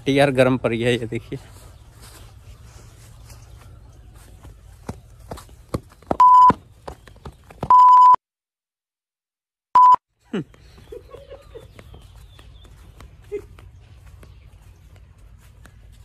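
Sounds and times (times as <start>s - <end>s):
footsteps on dry soil: 0.8s - 7.7s, 10.6s - 16.0s
electronic beeps: 6.2s - 6.6s, 7.7s - 8.2s, 9.8s - 10.0s.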